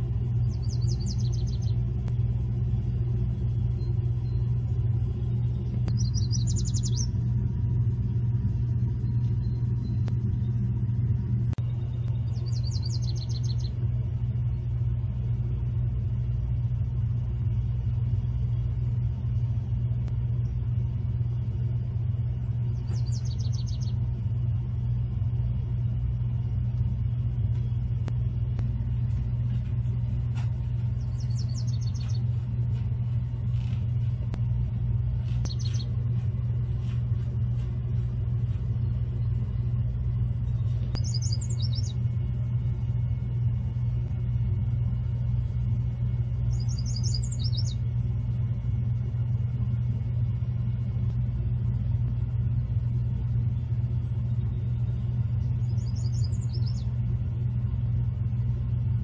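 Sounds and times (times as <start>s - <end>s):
loud steady low hum: 0.0s - 59.0s
small bird singing: 0.2s - 2.0s, 3.2s - 7.4s, 8.5s - 10.7s, 11.6s - 13.9s, 22.6s - 24.2s, 30.8s - 32.5s, 35.2s - 36.2s, 40.2s - 42.2s, 46.4s - 47.9s, 53.5s - 57.1s.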